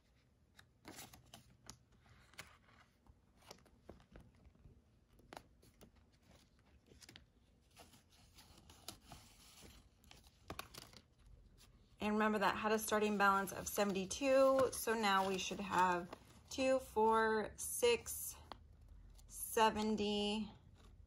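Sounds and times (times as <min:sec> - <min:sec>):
paper money rustling: 0:12.5 - 0:16.9.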